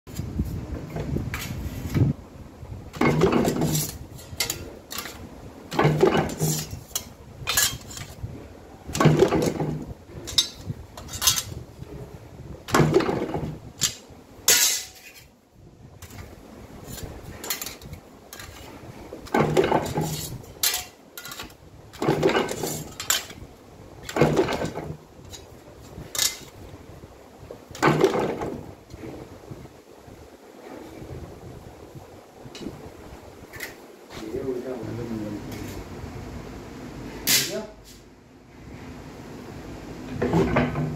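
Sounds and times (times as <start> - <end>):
steel sheets clinking together: 2.9 - 8.2, 8.9 - 11.6, 12.7 - 15.3, 16.0 - 23.4, 24.0 - 26.6, 37.3 - 37.6.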